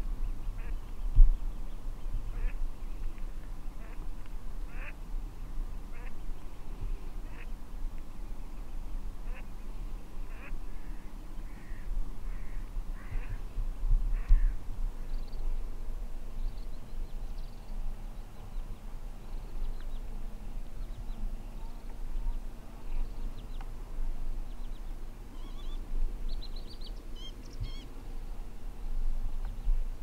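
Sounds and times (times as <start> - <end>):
steady low rumble: 0.0 - 30.0
birds twittering: 16.4 - 23.7, 24.4 - 27.9
small birds chirping: 16.4 - 23.7, 24.4 - 27.9.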